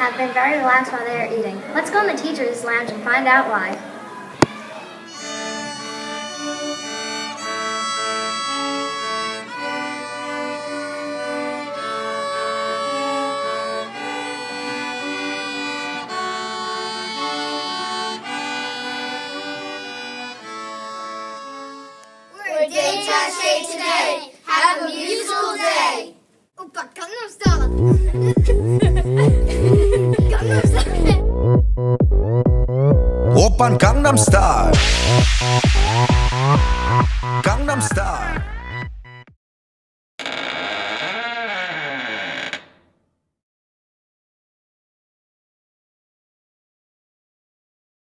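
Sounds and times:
children's voices: 0.0s - 5.2s, 22.4s - 28.3s, 30.0s - 31.2s
violins playing slow piece: 5.1s - 22.3s.

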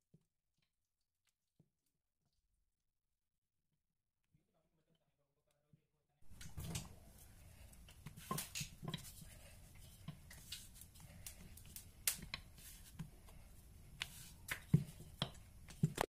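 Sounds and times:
kitchen utensil taps and clicks: 14.0s - 16.0s.

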